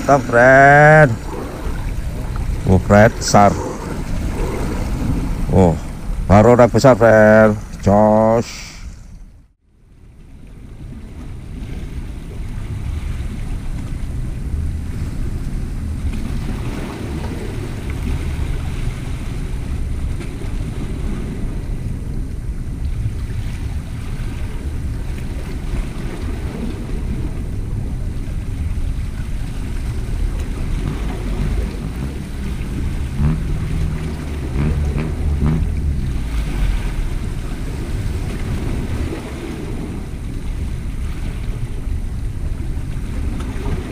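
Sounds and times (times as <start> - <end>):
water washing against rocks: 0.0 - 6.1
wind buffeting microphone: 0.0 - 43.9.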